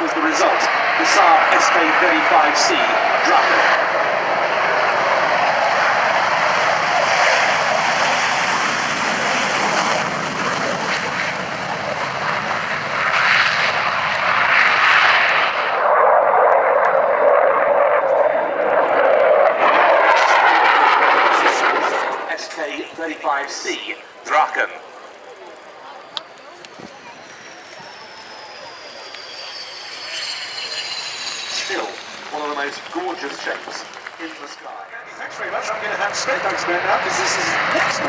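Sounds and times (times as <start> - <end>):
jet taking off with afterburner: 0.0 - 38.0.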